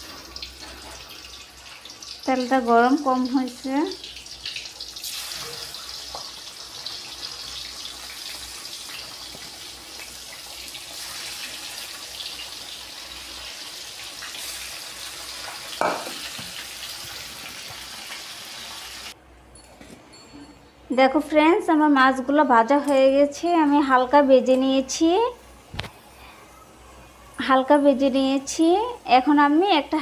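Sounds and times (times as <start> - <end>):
fish sizzling in hot oil: 0.0 - 19.2.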